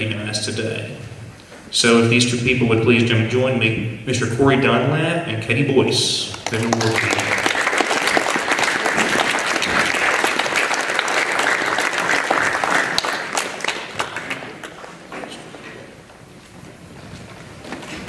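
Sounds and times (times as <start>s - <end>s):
audience applauding: 6.3s - 15.2s.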